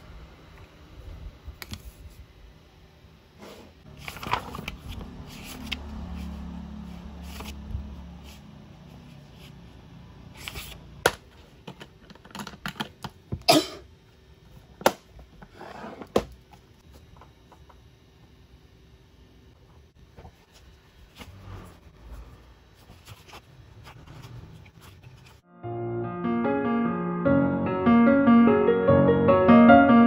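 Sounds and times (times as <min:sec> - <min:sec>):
paper rustling and sliding: 0:03.4 - 0:09.6, 0:20.2 - 0:25.4.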